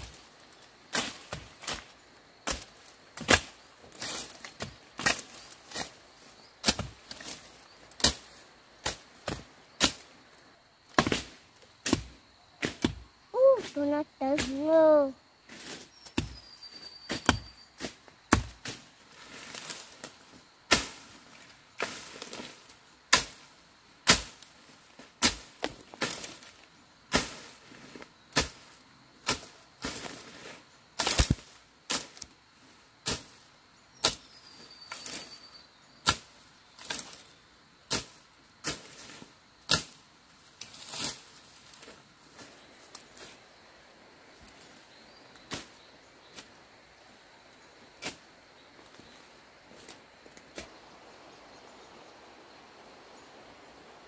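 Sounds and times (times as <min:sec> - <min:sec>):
machete chopping bamboo and brush: 0:00.9 - 0:06.0, 0:06.6 - 0:10.1, 0:10.9 - 0:14.7, 0:15.5 - 0:21.2, 0:21.8 - 0:32.3, 0:33.0 - 0:35.3, 0:36.0 - 0:40.0, 0:40.6 - 0:42.0, 0:45.4 - 0:46.5, 0:48.0 - 0:48.2, 0:50.5 - 0:50.8.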